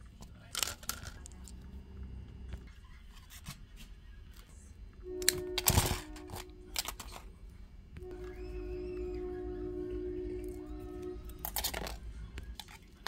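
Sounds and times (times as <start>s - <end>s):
soft background music: 4.6s - 13.0s
hands handling beads and wire: 11.3s - 12.8s.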